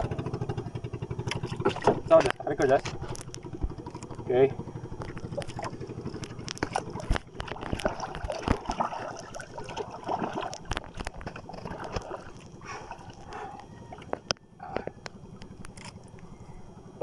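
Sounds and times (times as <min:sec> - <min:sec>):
water sloshing against boat hull: 0:00.0 - 0:15.8
sharp clicks and knocks: 0:01.2 - 0:04.2, 0:05.0 - 0:08.8.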